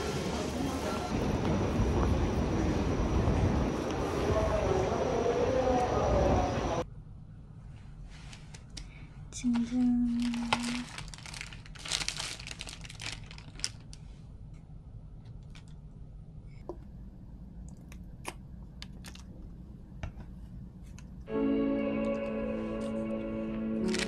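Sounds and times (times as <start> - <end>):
paper wrapper crinkling: 9.5 - 14.1.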